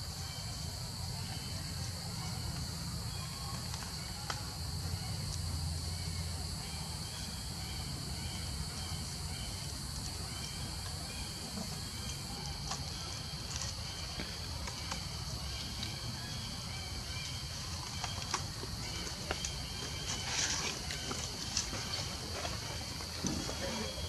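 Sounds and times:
insects droning: 0.0s - 24.0s.

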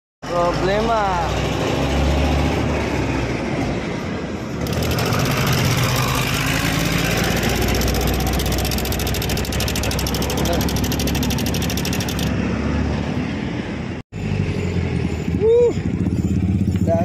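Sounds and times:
scooter engine idling with rattle: 4.6s - 12.3s, 15.0s - 17.0s.

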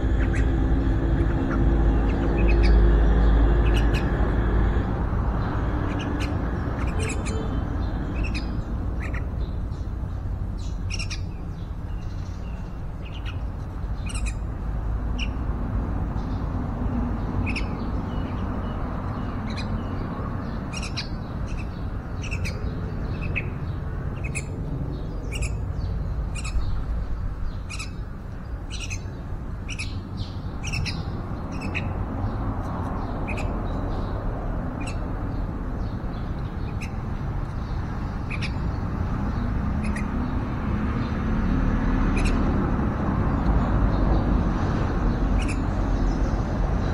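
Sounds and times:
bird chirps: 0.1s - 4.2s, 5.4s - 10.0s, 10.6s - 14.5s, 15.1s - 15.4s, 17.2s - 41.1s, 45.2s - 46.4s.

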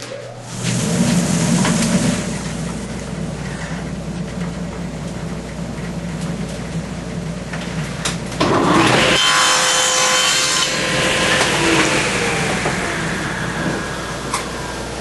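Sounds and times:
table saw cutting wood: 8.4s - 15.0s.

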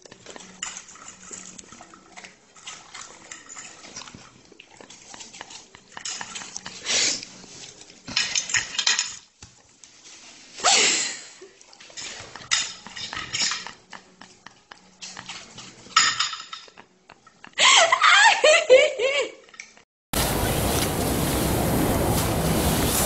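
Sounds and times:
fork scraping and clinking on plate: 0.4s - 4.3s.

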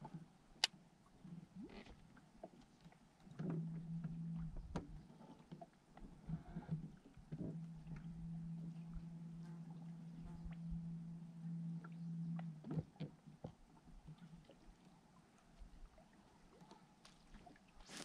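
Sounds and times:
electric trolling motor humming: 3.3s - 5.0s, 6.2s - 12.9s.

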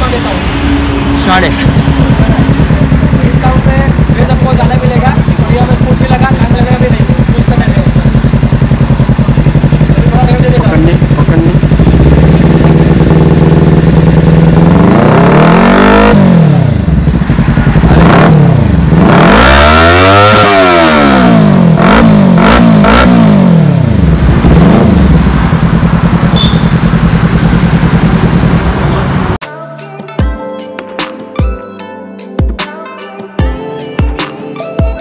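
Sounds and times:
motorcycle engine idling and revving: 0.0s - 29.4s.

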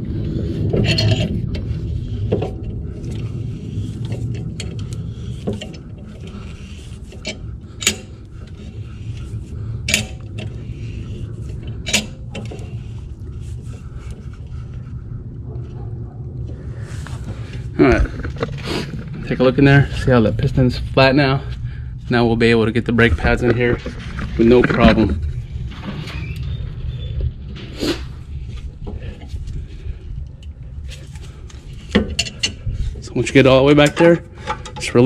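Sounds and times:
low steady hum: 0.0s - 35.0s
metal clamp handle clinking: 11.8s - 12.6s.

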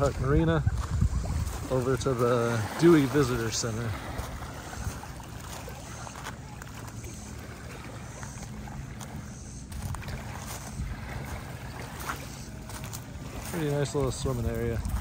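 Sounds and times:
wind on microphone: 0.0s - 2.8s, 9.7s - 12.3s, 14.1s - 15.0s
distant motorboat engine drone: 0.0s - 15.0s
small waves lapping on rocks: 0.0s - 15.0s.

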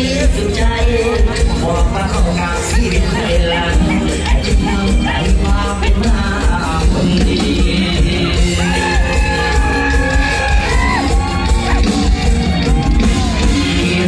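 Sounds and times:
man singing into a microphone: 0.0s - 11.0s
band with heavy bass beat: 0.0s - 14.0s.

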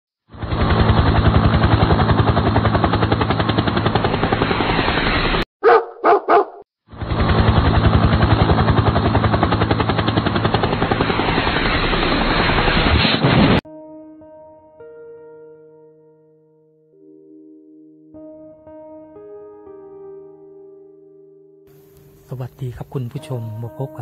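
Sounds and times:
fast pulsing rattle: 0.4s - 5.4s, 7.0s - 12.8s
short bark-like calls: 5.6s - 6.6s.

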